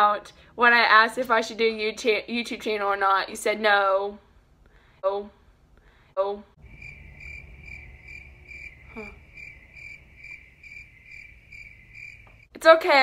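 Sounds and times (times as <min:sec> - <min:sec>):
insect chirping: 0:06.6 - 0:12.6
voice murmur: 0:08.9 - 0:09.2.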